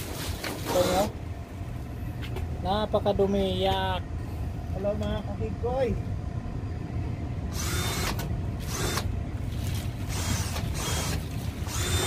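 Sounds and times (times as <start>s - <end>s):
steady low rumble: 1.1s - 12.0s
cordless drill whining: 7.5s - 9.1s, 10.1s - 12.0s.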